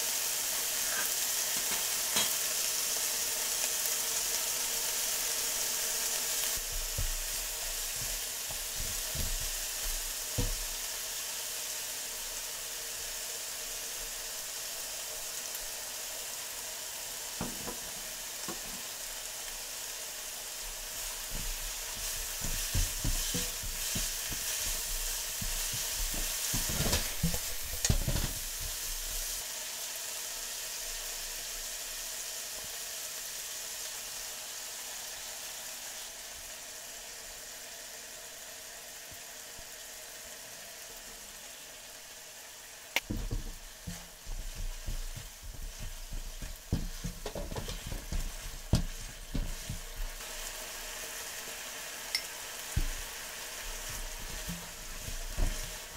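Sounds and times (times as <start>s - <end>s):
chicken sizzling in oil: 0.0s - 55.9s
turner scraping frying pan: 21.1s - 29.2s, 43.2s - 50.2s, 52.8s - 55.9s.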